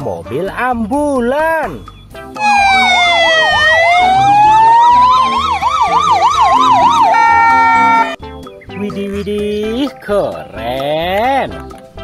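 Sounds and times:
emergency vehicle sirens: 0:02.4 - 0:08.2.

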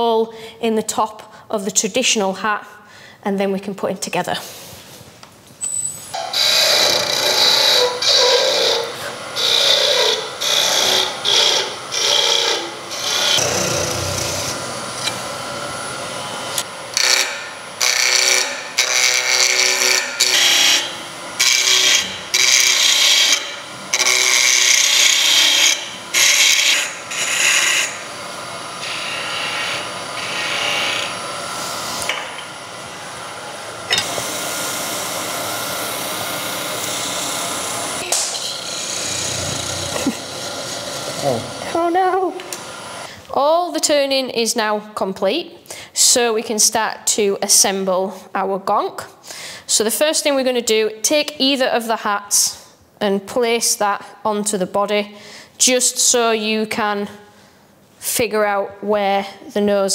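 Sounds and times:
gouge scraping wood: 0:06.2 - 0:15.1, 0:38.7 - 0:41.7
wood lathe running: 0:06.2 - 0:43.1.

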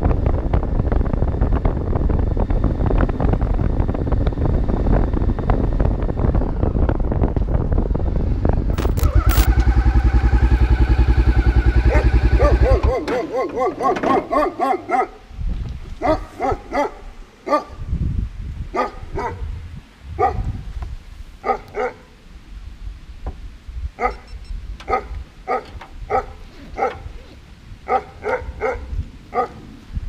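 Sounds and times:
dog barking: 0:11.8 - 0:15.2, 0:16.0 - 0:17.8, 0:18.7 - 0:19.5, 0:20.2 - 0:20.6, 0:21.4 - 0:22.2, 0:24.0 - 0:27.1, 0:27.9 - 0:29.6.

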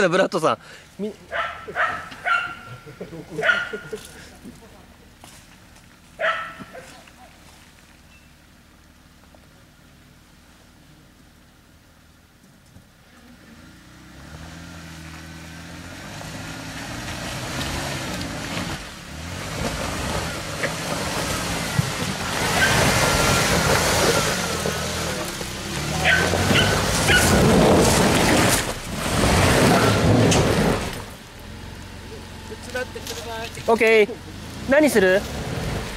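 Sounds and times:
off-road vehicle engine revving: 0:01.2 - 0:07.2, 0:13.0 - 0:35.9
tyres crunching over rocks: 0:16.9 - 0:31.2.

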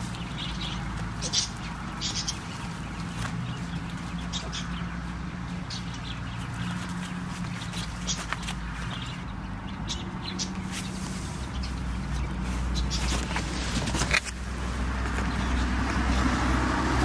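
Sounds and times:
clicks and scuffs: 0:06.3 - 0:09.2, 0:10.4 - 0:16.0.

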